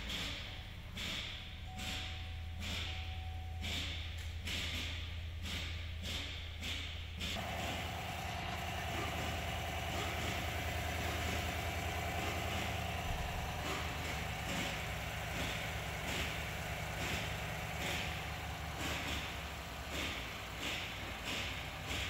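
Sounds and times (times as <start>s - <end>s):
engine idling: 0.0s - 22.0s.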